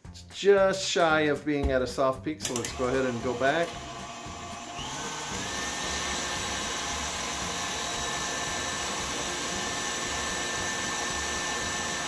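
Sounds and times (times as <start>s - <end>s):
stand mixer motor whining: 2.6s - 12.0s.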